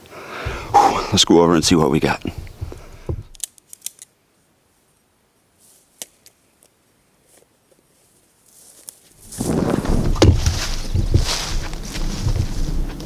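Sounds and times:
rustling of grass and clothing: 0.0s - 13.0s
gear clicks and knocks: 1.6s - 4.0s, 9.8s - 13.0s.

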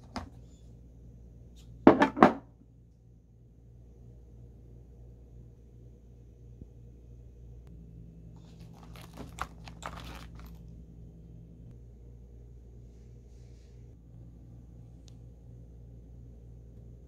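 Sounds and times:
fabric pouch rustling: 8.4s - 10.7s.

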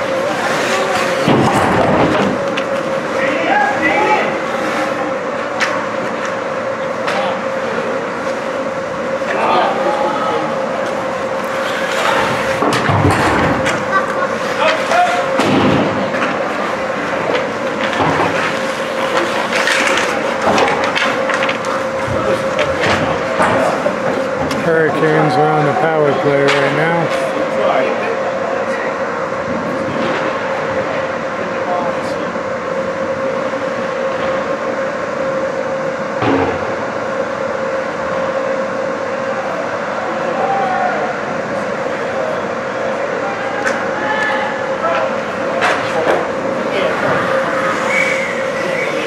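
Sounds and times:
steady rink hum: 0.0s - 49.0s
hockey sticks and puck clacking: 17.3s - 22.8s.

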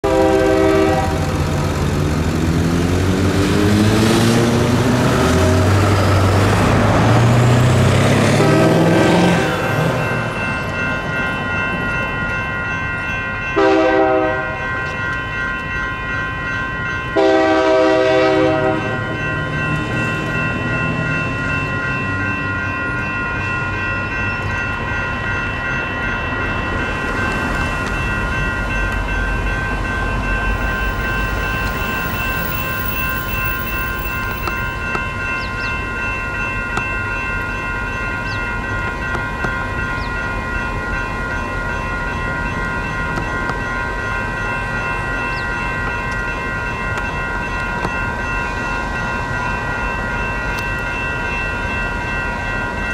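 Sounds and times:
locomotive horn blasts: 0.0s - 1.3s, 8.4s - 9.5s, 13.6s - 14.6s, 17.2s - 19.0s
crossing bells ringing: 0.0s - 52.9s
locomotive diesel engine: 0.1s - 10.9s.

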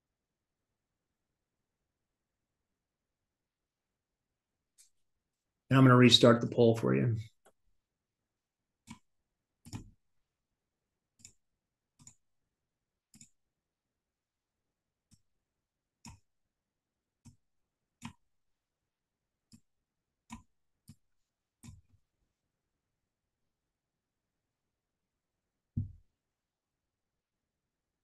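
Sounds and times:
computer mouse clicks: 8.8s - 10.0s, 11.1s - 12.3s, 13.1s - 13.4s, 15.1s - 15.3s, 16.0s - 16.3s, 18.0s - 18.3s, 19.5s - 21.9s.

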